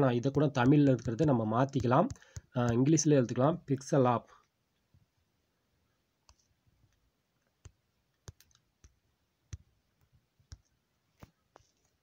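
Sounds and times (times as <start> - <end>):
taps on smartphone keyboard: 0.3 - 2.9.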